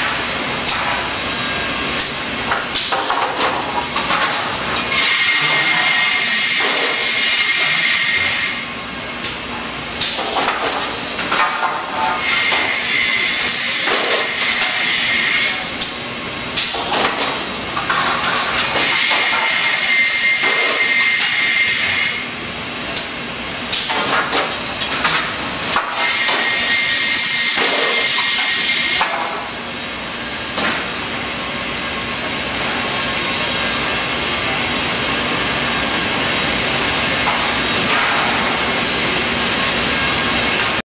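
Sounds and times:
rip saw machine running: 4.8 - 8.6, 25.8 - 29.1
saw whine while cutting: 4.9 - 8.6.

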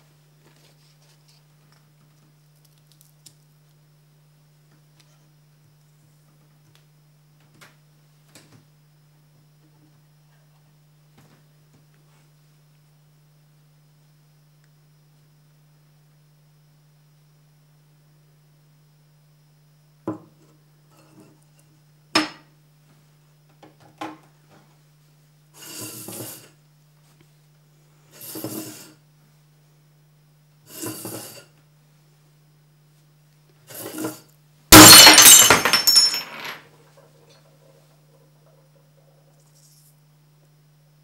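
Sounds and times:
cup smashing: 34.7 - 36.6
shards tinkling: 34.8 - 36.6.

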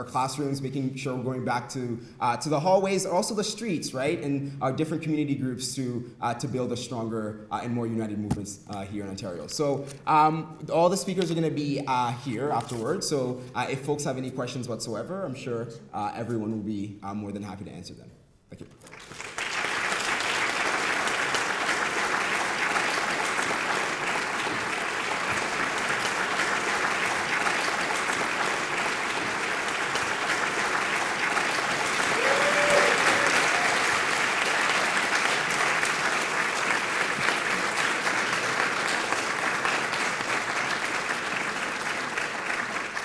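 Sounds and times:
audience applauding: 18.8 - 43.0.

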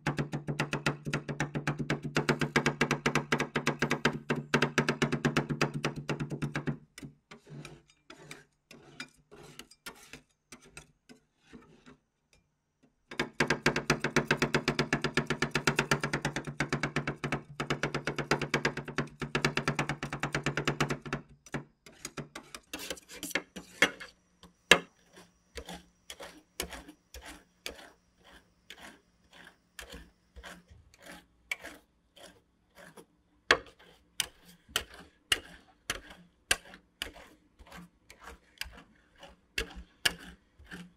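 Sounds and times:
metal spatulas chopping on metal plate: 6.0 - 11.9, 18.4 - 40.9.

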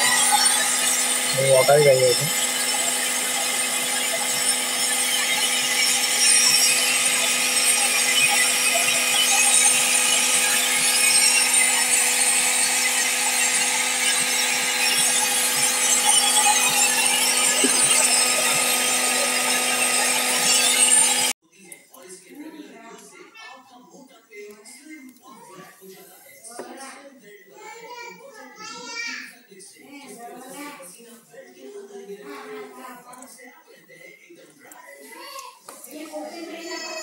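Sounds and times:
small electric machine humming: 0.0 - 21.4.

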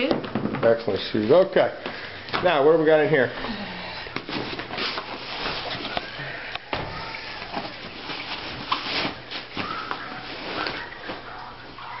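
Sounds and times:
bag and clothing rustling: 4.2 - 6.2.

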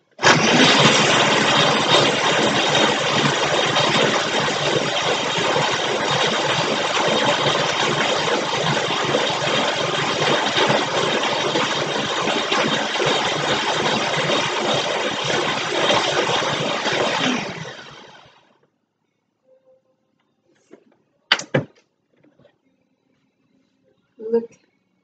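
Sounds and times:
blender running: 0.2 - 18.5.

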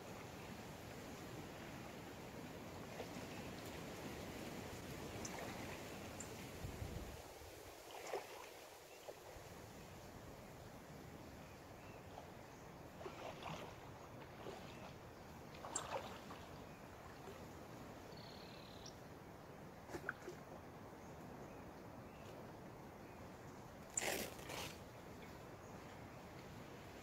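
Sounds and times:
paddle strokes splashing: 7.6 - 9.4, 12.9 - 17.5, 19.8 - 20.4.

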